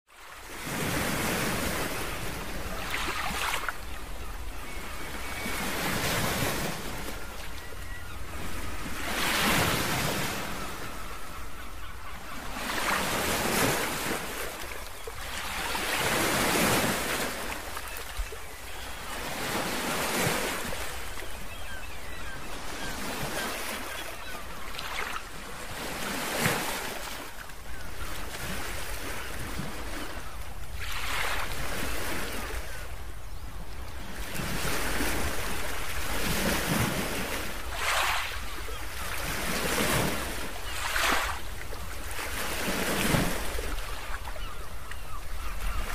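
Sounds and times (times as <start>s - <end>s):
ocean waves washing: 34.3s - 45.9s.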